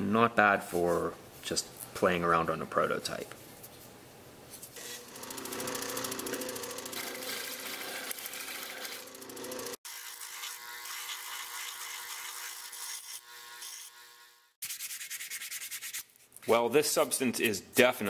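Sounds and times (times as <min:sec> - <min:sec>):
disc sander motor hum: 0:04.8 - 0:09.8.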